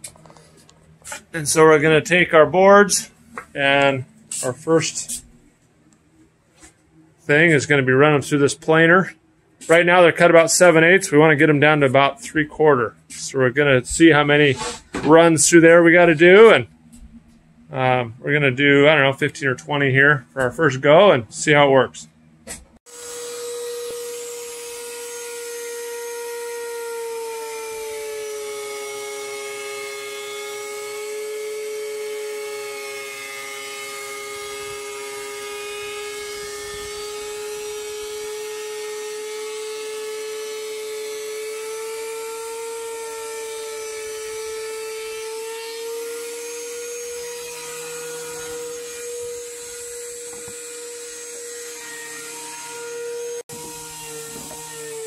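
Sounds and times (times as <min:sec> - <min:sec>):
thickness planer whining: 0:22.5 - 0:55.0.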